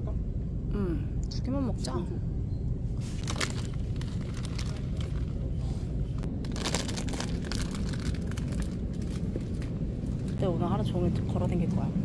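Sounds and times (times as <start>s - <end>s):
steady low rumble: 0.0s - 12.0s
plastic packets crinkling: 3.2s - 5.4s, 6.4s - 9.8s.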